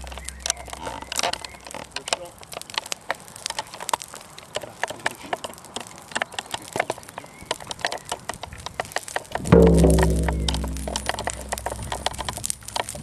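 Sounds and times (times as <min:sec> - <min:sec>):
brush fire crackling and popping: 0:00.0 - 0:13.0
deep ringing tone: 0:09.6 - 0:12.2.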